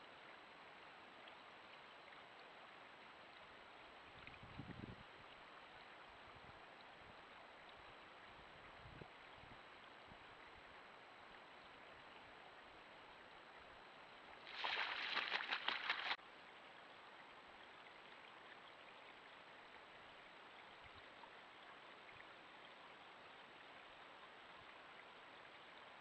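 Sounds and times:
bird splashing in water: 14.4s - 16.2s.

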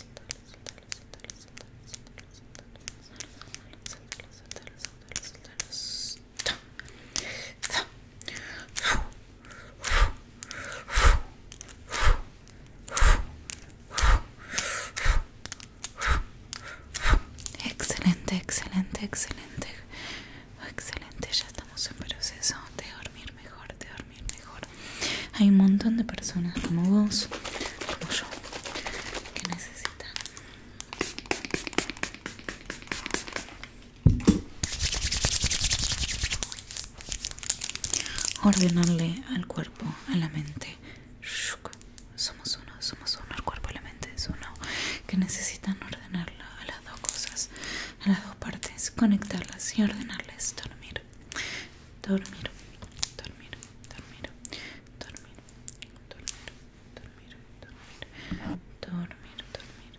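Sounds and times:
hands rubbing near microphone: 26.6s - 30.1s, 30.9s - 33.7s, 34.6s - 37.3s.

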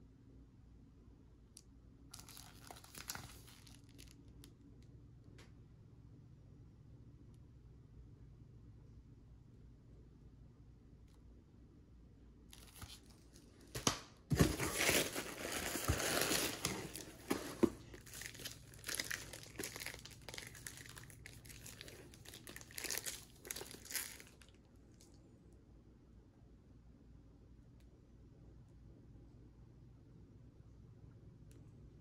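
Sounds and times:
plastic crackles: 2.1s - 4.6s, 12.5s - 25.1s
shrink wrap crinkling: 2.1s - 4.6s, 12.5s - 25.2s.

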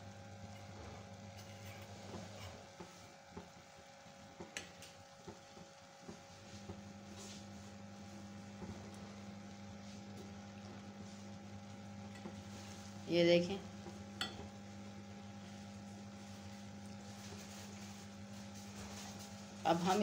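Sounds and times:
steady low hum: 0.0s - 20.0s
metal spoon stirring in pot: 0.5s - 3.0s.

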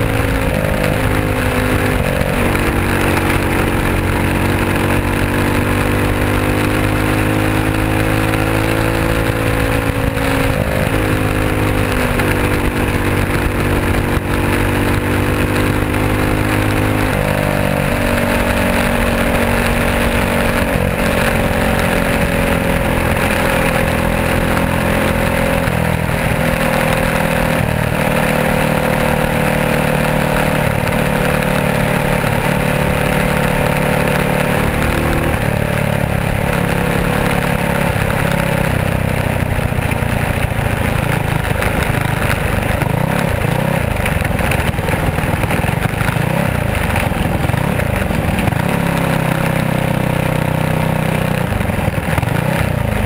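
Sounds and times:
race car engine revving: 0.0s - 53.0s.

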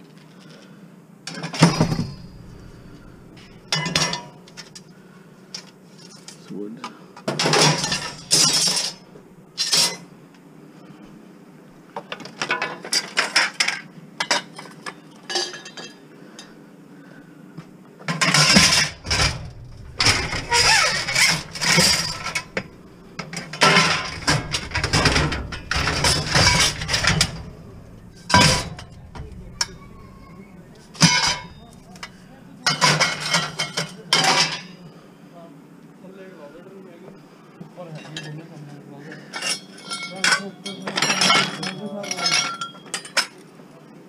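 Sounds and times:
scrap metal clanking and scraping: 1.3s - 4.8s, 7.3s - 10.1s, 18.1s - 34.8s.

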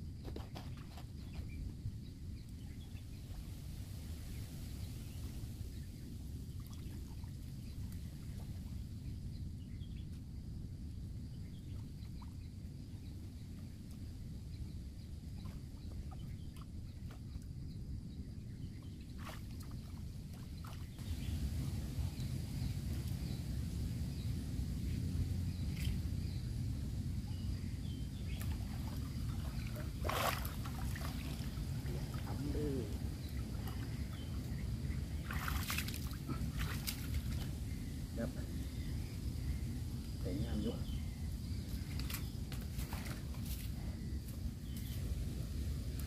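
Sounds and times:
low steady rumble: 1.1s - 46.0s
water splashing and sloshing: 6.5s - 8.8s, 18.8s - 23.8s, 27.3s - 37.8s, 41.6s - 45.0s.

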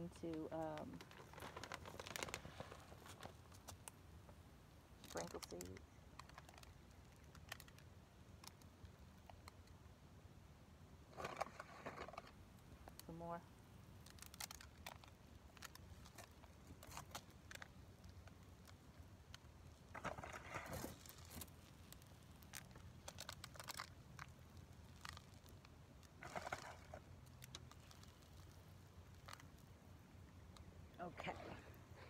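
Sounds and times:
seeds pattering onto soil: 0.7s - 4.0s, 13.9s - 30.7s.

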